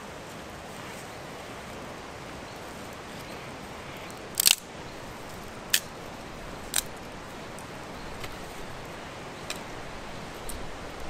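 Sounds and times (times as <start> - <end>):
campfire burning with hiss: 0.0 - 11.0
sharp fire cracks: 4.2 - 7.4.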